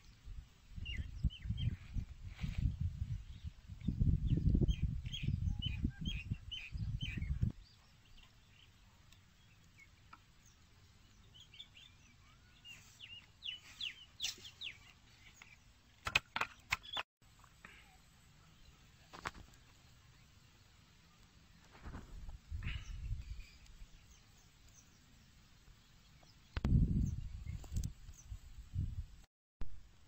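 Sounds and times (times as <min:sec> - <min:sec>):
small birds chirping: 0:00.0 - 0:28.6
wind rumble on microphone: 0:00.2 - 0:07.7, 0:21.8 - 0:24.0, 0:26.6 - 0:29.3.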